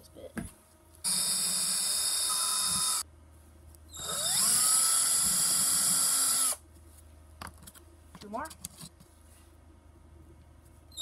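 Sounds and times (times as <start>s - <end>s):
cordless drill whining: 1.1s - 3.0s, 3.9s - 6.6s.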